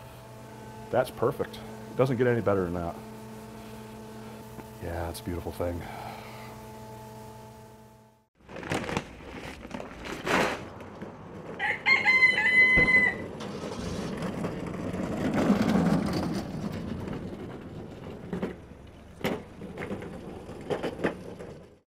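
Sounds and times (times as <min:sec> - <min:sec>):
rustling: 0:08.4 - 0:11.5
rooster crowing: 0:11.6 - 0:13.3.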